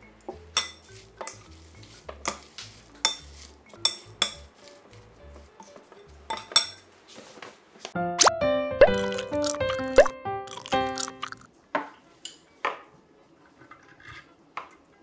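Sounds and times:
metal spoon clinking against glass: 6.3s - 6.8s.

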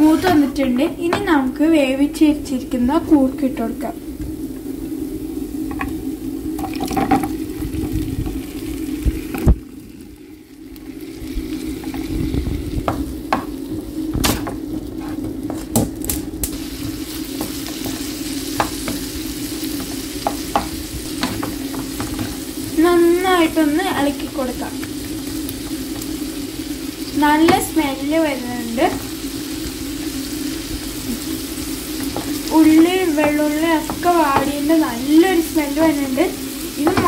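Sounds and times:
spatula scraping a pan: 0.0s - 0.8s
oil sizzling: 0.0s - 37.0s
spatula tapping pan: 19.7s - 22.4s, 32.0s - 34.8s, 36.8s - 37.0s.

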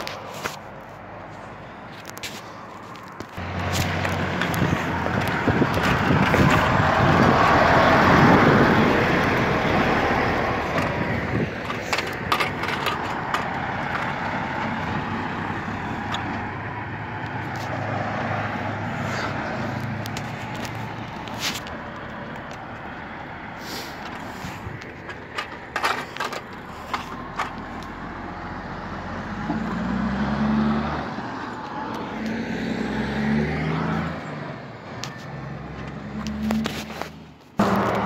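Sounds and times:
truck engine humming: 0.0s - 33.1s
car driving past: 28.4s - 34.6s.

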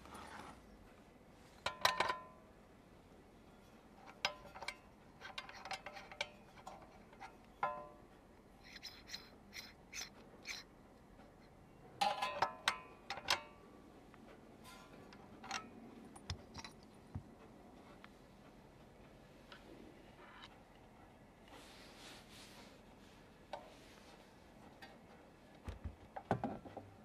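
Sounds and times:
clicks and metal clinks: 4.0s - 8.1s, 11.3s - 13.7s, 14.6s - 17.5s
metal parts rubbing: 8.6s - 10.7s.

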